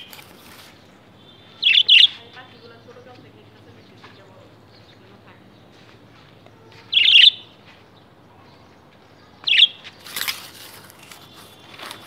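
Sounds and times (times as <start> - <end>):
budgerigar chirps: 1.6 - 2.2
brief rustle: 10.0 - 12.0.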